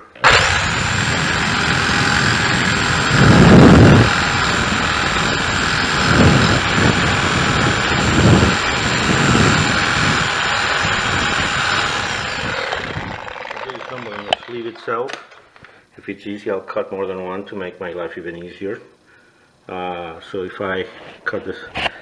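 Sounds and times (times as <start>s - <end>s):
reciprocating saw cutting metal: 0.0s - 15.1s.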